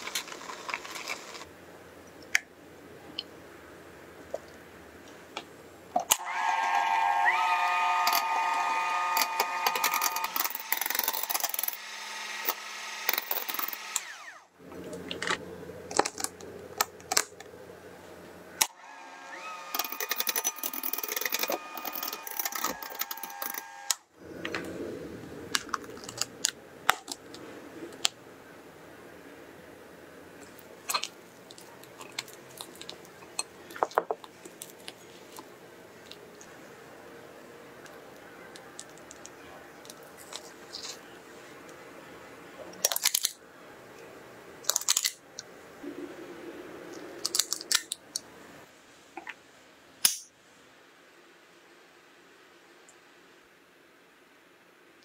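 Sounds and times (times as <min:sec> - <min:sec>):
electric hand mixer whining: 0:06.1 - 0:14.5, 0:18.7 - 0:24.0.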